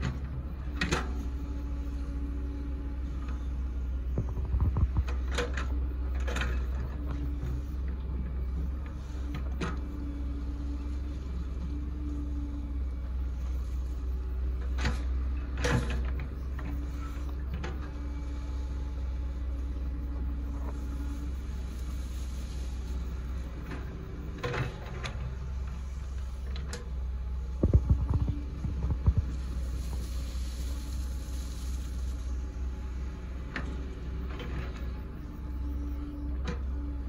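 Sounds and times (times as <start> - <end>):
diesel engine running: 0.0 - 37.0
hydraulic whine: 0.0 - 37.0.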